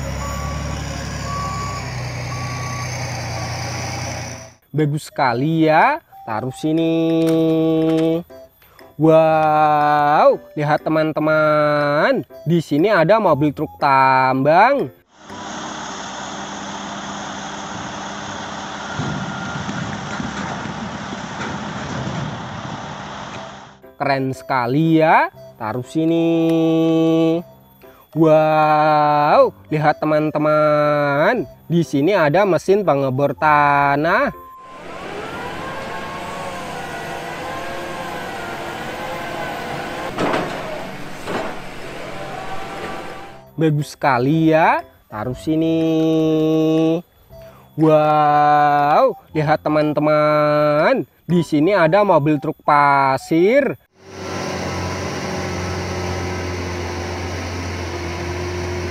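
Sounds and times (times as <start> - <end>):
diesel truck engine running: 0.0 - 4.6, 15.1 - 23.9, 33.8 - 43.5, 53.9 - 58.9.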